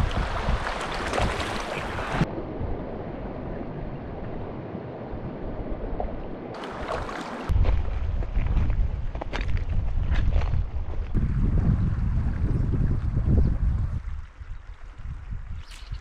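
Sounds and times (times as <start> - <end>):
creek rushing over stones: 0.0 - 2.3, 6.6 - 7.5.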